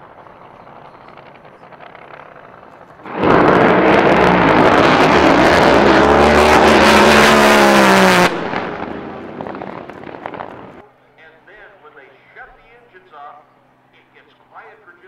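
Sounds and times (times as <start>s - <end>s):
drag boat engines roaring: 0.0s - 10.8s.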